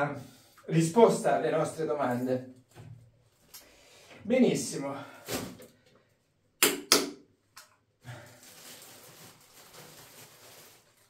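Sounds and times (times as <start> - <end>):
soft rustle of handling: 8.2 - 11.0.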